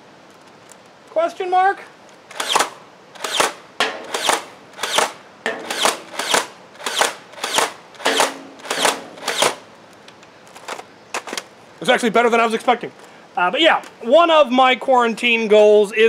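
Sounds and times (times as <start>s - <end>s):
toy blaster shots: 2.3s - 9.6s.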